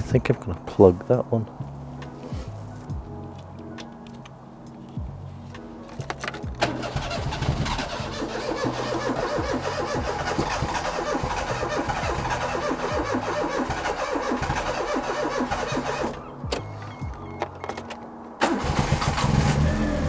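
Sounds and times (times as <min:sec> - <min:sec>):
car engine starting and running: 0:06.1 - 0:20.0.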